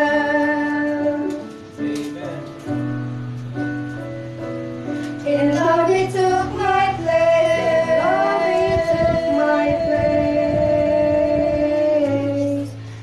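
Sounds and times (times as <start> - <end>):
instrumental accompaniment: 0.0 - 13.0
vocal trio singing gospel: 5.3 - 13.0.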